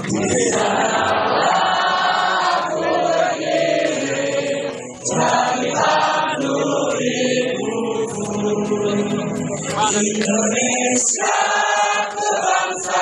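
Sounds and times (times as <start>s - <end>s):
crowd singing in unison: 0.0s - 13.0s.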